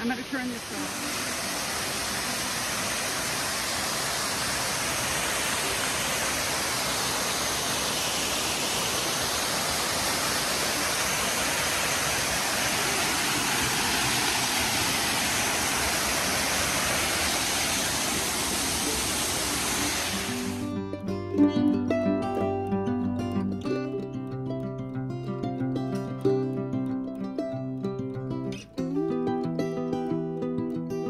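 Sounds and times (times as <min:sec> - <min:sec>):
waterfall rushing: 0:00.0 - 0:20.8.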